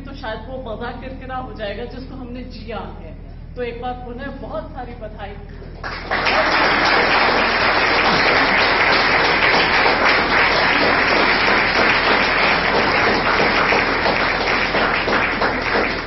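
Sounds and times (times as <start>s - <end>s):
audience applauding: 5.8s - 16.0s.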